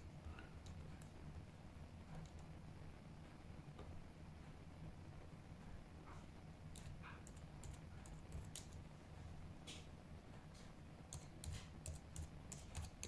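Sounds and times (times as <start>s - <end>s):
keyboard typing clicks: 11.1s - 13.0s.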